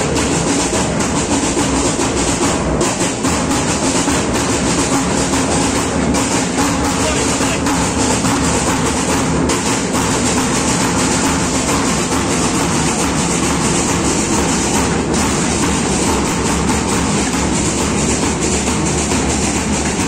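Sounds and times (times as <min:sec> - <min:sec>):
marching drum band: 0:00.0 - 0:20.0.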